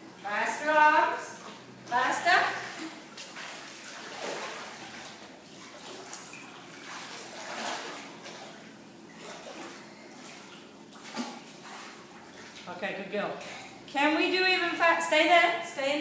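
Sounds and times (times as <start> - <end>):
water splashing from swimmer: 1.3 - 12.8.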